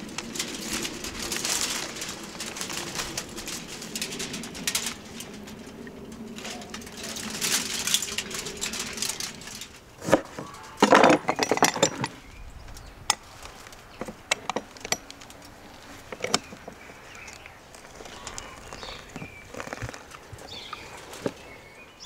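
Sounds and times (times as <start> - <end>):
knocks and clatter on wooden table: 10.0 - 12.1.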